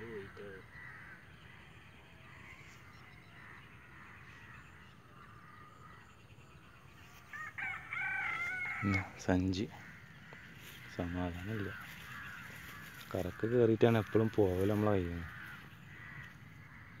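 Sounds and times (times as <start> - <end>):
faint bird calls: 0.0 - 17.0
rooster crowing: 7.3 - 9.2.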